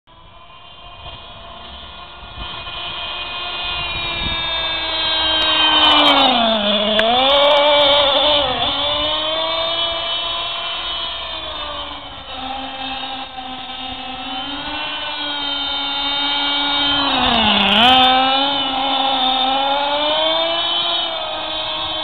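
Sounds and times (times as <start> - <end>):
small nitro engine running: 0.1 - 22.0.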